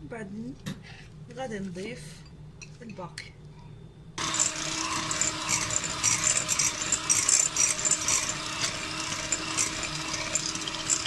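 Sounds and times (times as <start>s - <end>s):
electric hand mixer humming: 4.2s - 11.0s
beaters rattling against glass bowl: 4.4s - 11.0s.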